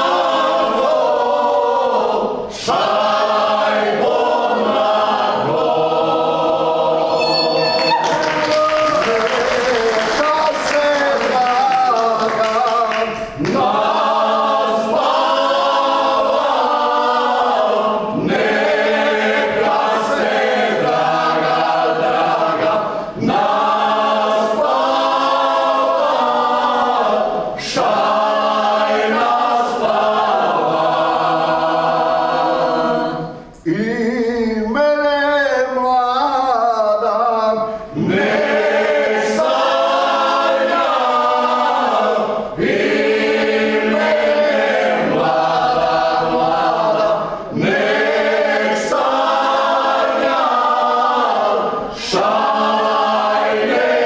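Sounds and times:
folk group singing a cappella: 0.0 - 54.0.

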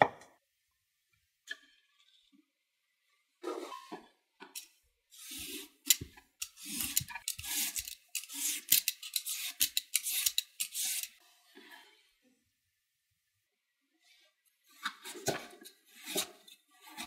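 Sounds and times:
peeler scraping cucumber: 5.1 - 11.2, 15.9 - 17.0.

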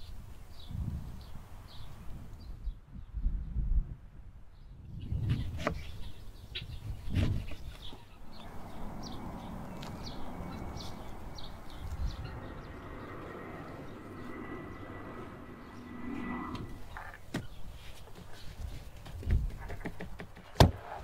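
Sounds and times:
birds chirping: 4.6 - 20.6.

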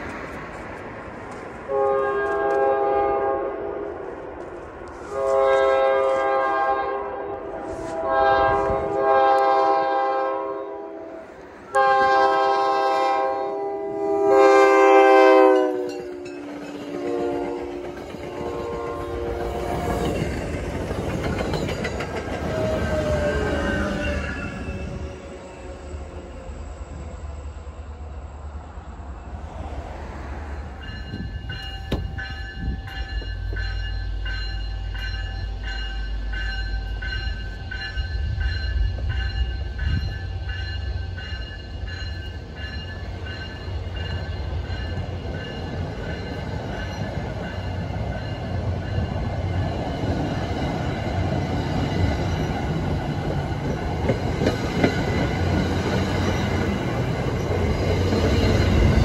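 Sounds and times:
train low rumble: 0.0 - 59.0
train wheels on rails: 0.0 - 59.0
pulsing bell ringing: 30.8 - 50.0.

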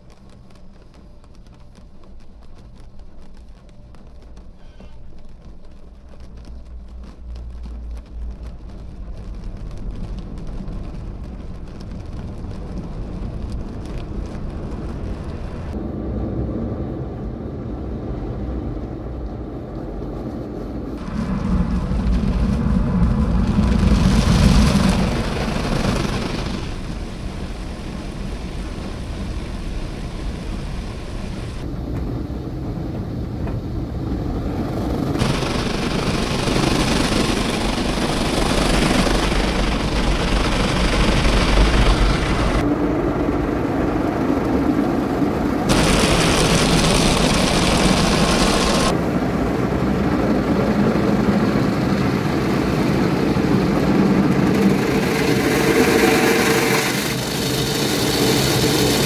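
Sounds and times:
car wash machinery running: 5.6 - 49.2, 49.9 - 59.0
water spraying onto car: 35.2 - 42.6, 45.7 - 48.9, 54.7 - 59.0.

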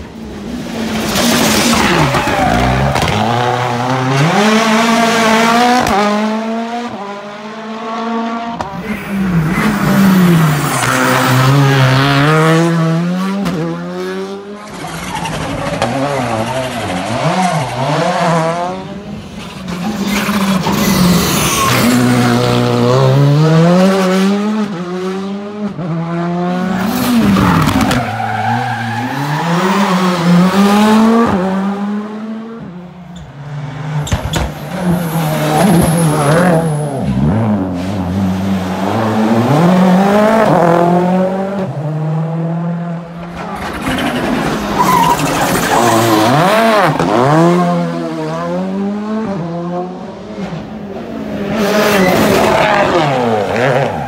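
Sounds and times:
rally car engines revving: 0.0 - 54.0.

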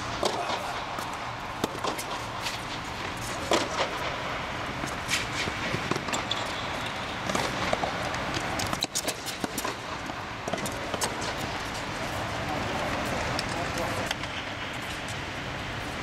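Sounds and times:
steady background noise: 0.0 - 16.0
ball bouncing on hard court: 0.2 - 2.6, 4.8 - 11.4
tennis ball hit by rackets: 0.2 - 4.1, 7.2 - 11.4.

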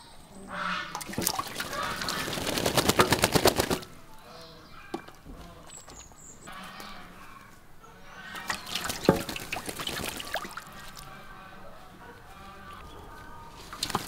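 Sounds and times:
water dabbling and dripping: 0.6 - 3.9, 8.2 - 11.2, 13.6 - 14.0
duck wings splashing water: 0.6 - 4.0, 8.2 - 11.5, 13.5 - 14.0.

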